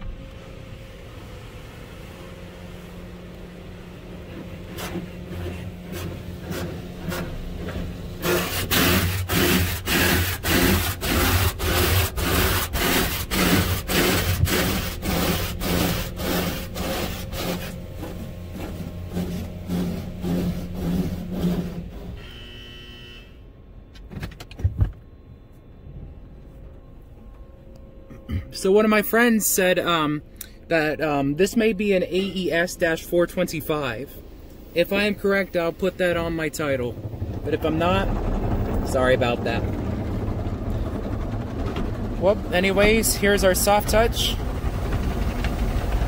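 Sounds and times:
steady machine hum: 0.0s - 46.0s
short electronic tone: 22.2s - 23.5s.

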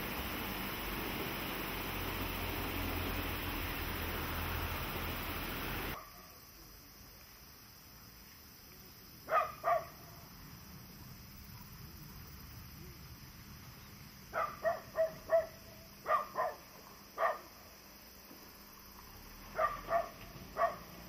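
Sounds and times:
dog barking: 9.3s - 10.0s, 14.3s - 17.5s, 19.5s - 20.9s.

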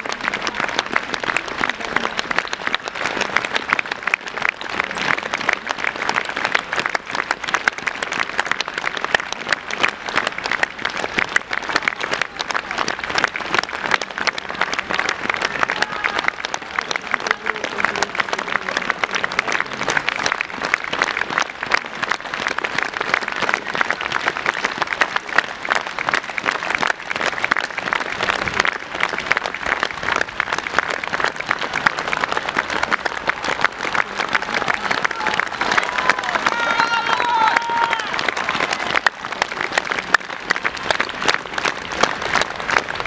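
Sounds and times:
crowd applauding: 0.0s - 43.0s.

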